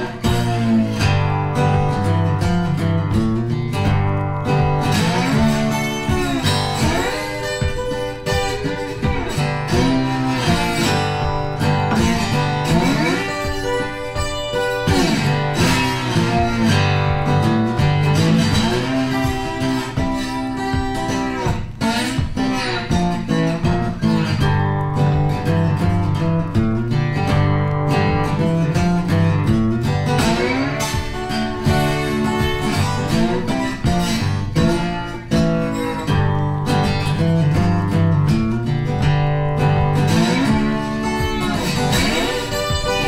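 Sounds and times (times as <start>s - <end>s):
guitar background music: 0.0s - 43.0s.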